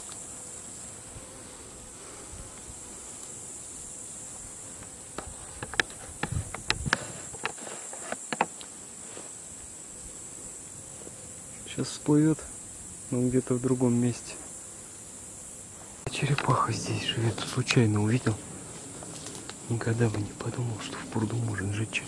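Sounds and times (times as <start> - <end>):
insects chirring: 0.0 - 22.0
sharp clicks and knocks: 4.8 - 8.7.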